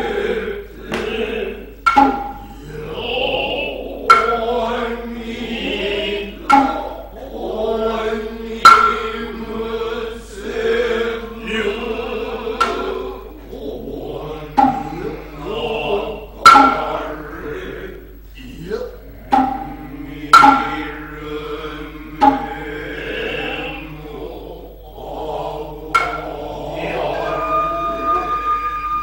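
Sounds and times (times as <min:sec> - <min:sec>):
chorus chanting in unison: 0:00.0 - 0:29.0
sharp drum strikes: 0:01.8 - 0:02.6, 0:04.1 - 0:04.7, 0:06.4 - 0:07.0, 0:08.6 - 0:09.4, 0:12.5 - 0:13.2, 0:14.6 - 0:15.4, 0:16.4 - 0:17.3, 0:19.2 - 0:23.8, 0:25.9 - 0:26.6.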